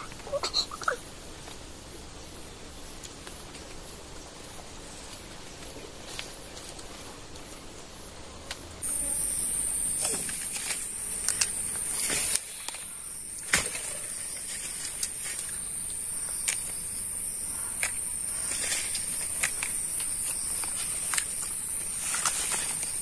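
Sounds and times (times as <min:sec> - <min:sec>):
high-pitched insect drone: 0:08.7 - 0:23.0.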